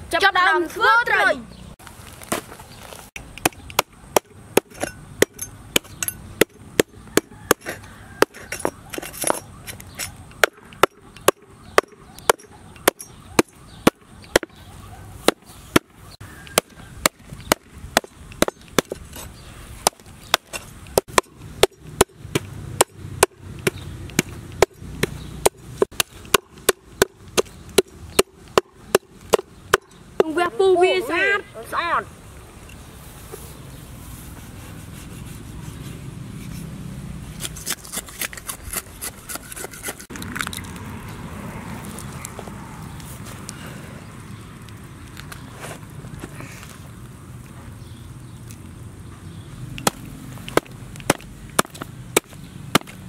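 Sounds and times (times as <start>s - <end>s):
cleaver chopping on wooden board: 3.4s - 8.8s, 10.4s - 14.6s, 15.3s - 15.9s, 16.5s - 19.0s, 19.8s - 30.3s, 49.8s - 53.0s.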